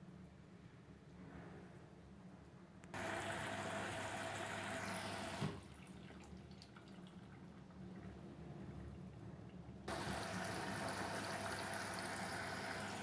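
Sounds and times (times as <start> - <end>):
water rushing into washing machine: 3.0 - 7.7, 9.9 - 13.0
thump of water flow stopping: 5.3 - 5.6.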